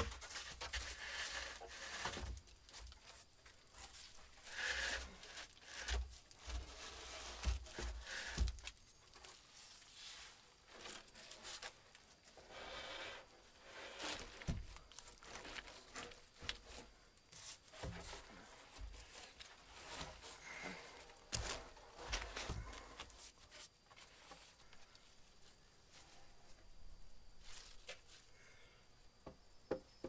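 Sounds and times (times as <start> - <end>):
hands rustling and crinkling: 13.8 - 26.3.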